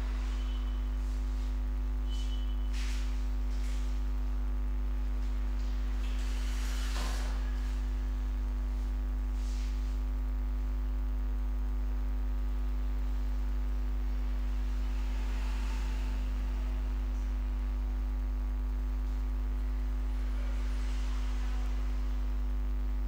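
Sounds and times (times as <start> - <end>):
electrical mains hum: 0.0 - 23.0.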